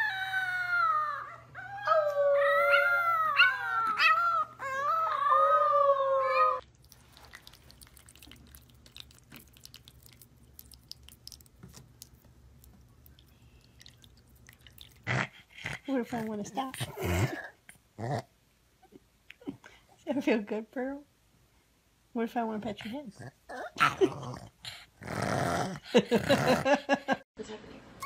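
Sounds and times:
puppy howling: 0.0 - 6.6.

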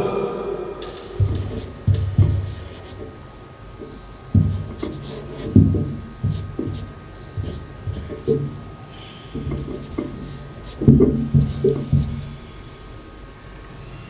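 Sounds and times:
faint steady hum: 0.0 - 14.0
marker pen writing on paper: 1.2 - 3.2, 4.4 - 8.6, 9.4 - 12.4.

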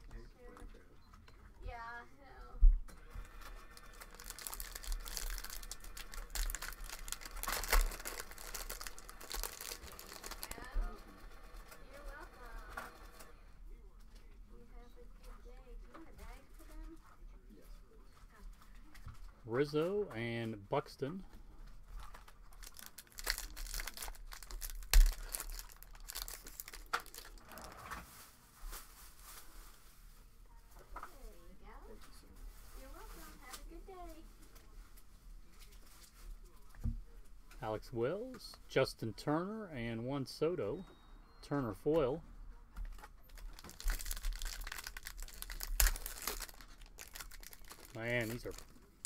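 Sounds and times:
foil wrapper crinkling and tearing: 3.4 - 11.0, 22.0 - 28.1, 43.2 - 48.9.

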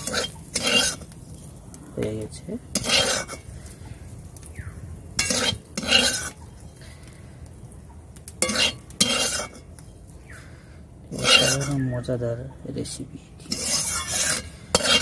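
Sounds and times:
metal spatula scraping a wok: 0.0 - 1.6, 2.7 - 3.8, 5.2 - 7.0, 8.4 - 9.8, 11.1 - 11.9, 13.4 - 15.0
frying in hot oil: 0.0 - 15.0.

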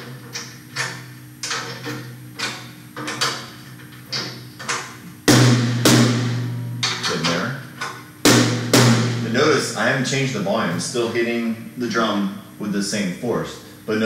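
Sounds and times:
tom drum hits ringing: 5.3 - 7.5, 8.2 - 9.8.

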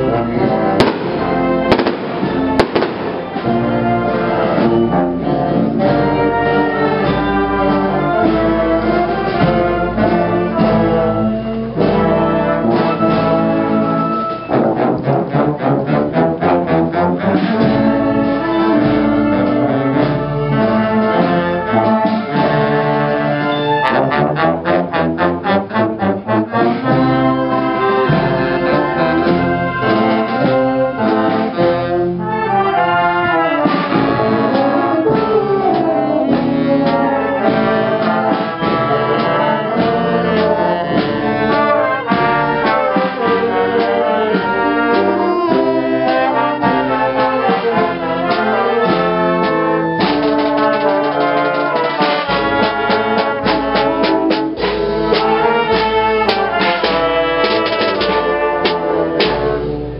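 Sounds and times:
brass marching band playing: 0.0 - 59.9
drum strokes: 0.3 - 5.0, 33.6 - 59.9.

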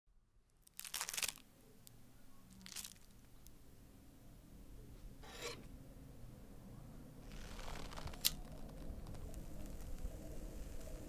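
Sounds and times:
faint low hum: 0.2 - 11.0
rasping scraping noises: 5.2 - 5.7.

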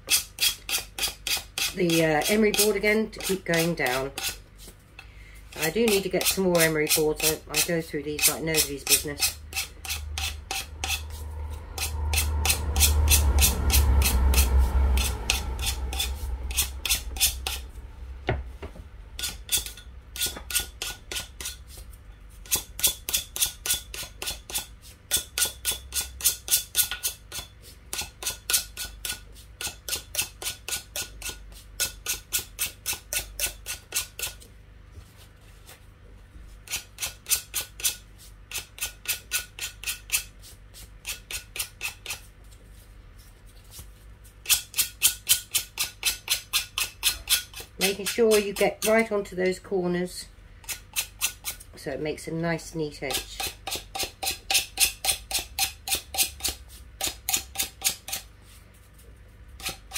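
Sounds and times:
emery board rasping on glass: 0.0 - 4.7, 5.6 - 17.7, 19.2 - 34.4, 44.4 - 49.2, 53.1 - 58.3, 59.6 - 59.9
low handling rumble: 9.4 - 20.2.

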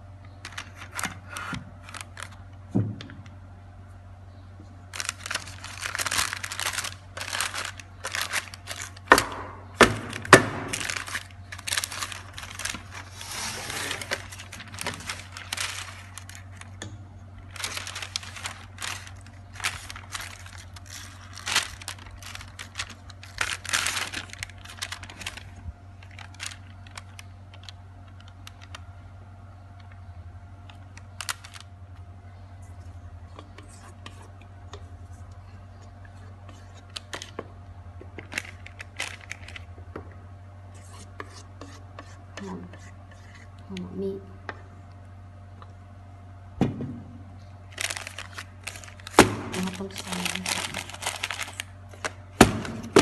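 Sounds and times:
low steady hum: 0.0 - 53.0
baking paper crinkling: 0.4 - 2.7, 4.8 - 28.9, 30.6 - 31.7, 38.1 - 39.8, 47.6 - 53.0.

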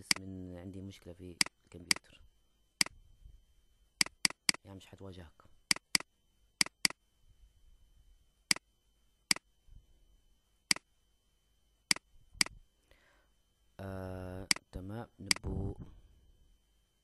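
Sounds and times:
computer mouse clicking: 0.0 - 0.2, 4.0 - 4.6, 5.7 - 7.0.

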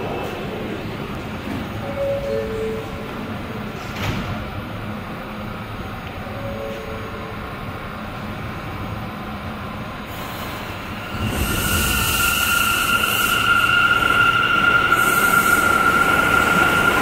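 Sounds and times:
subway train equipment humming: 0.0 - 17.0
air hiss: 10.1 - 14.2.

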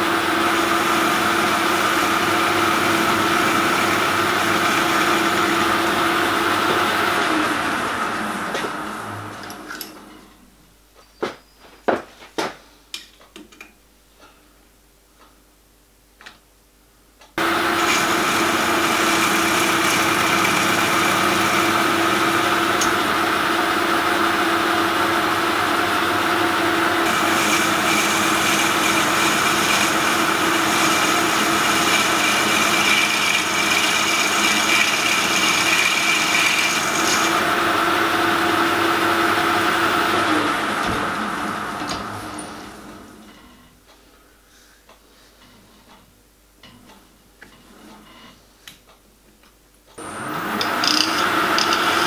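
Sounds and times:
metal lathe running: 0.1 - 9.5, 17.4 - 42.5, 50.0 - 52.0.

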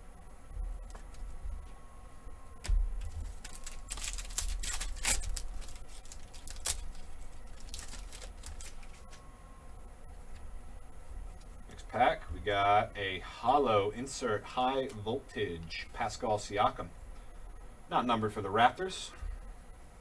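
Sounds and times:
card pack wrapper crinkling: 3.0 - 9.2.

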